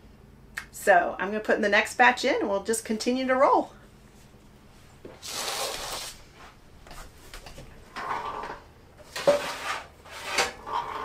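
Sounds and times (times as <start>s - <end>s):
baking sheet scraping: 5.0s - 6.6s, 7.9s - 11.0s.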